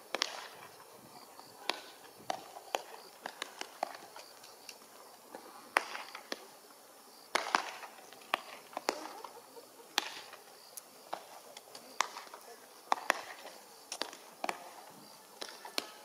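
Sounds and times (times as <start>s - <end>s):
baseballs smacking into gloves: 0.1s - 0.7s, 1.7s - 4.4s, 5.7s - 6.5s, 7.3s - 9.3s, 9.9s - 10.4s, 11.1s - 14.8s, 15.4s - 16.0s.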